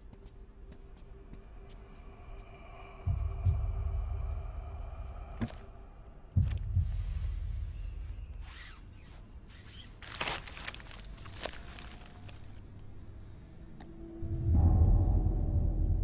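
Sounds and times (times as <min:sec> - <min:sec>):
cloth gift wrapping rustling: 0:08.4 - 0:12.6.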